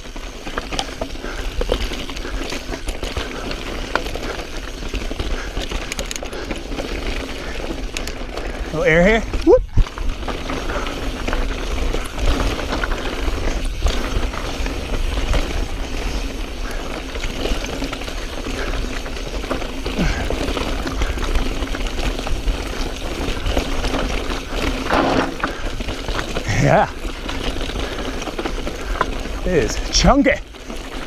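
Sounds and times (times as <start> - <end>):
bike clattering and rattling: 0.0 - 31.0
tyres crunching over loose rock: 0.0 - 31.0.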